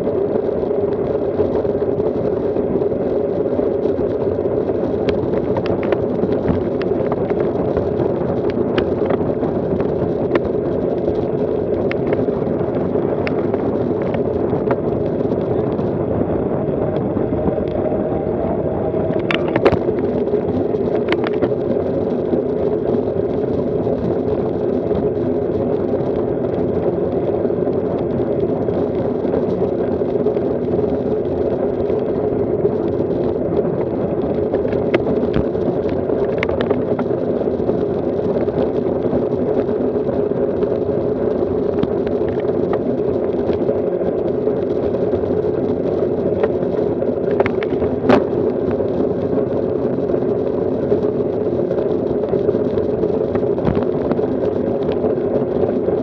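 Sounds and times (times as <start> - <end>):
bike tyres rolling on asphalt: 0.0 - 56.0
wind buffeting microphone: 0.0 - 56.0.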